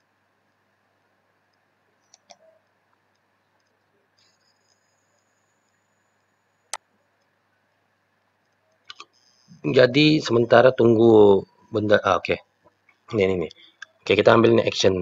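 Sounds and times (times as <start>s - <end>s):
computer mouse clicks: 1.5s - 5.8s, 8.2s - 9.4s.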